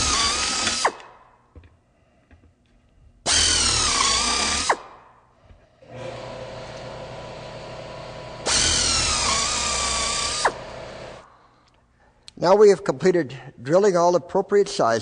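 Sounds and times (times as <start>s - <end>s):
power drill whine: 0.0s - 1.0s, 3.3s - 4.8s, 5.8s - 11.2s.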